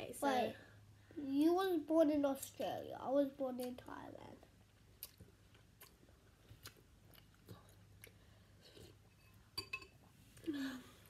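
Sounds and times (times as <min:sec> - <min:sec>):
person chewing noodles: 0:04.7 - 0:09.2.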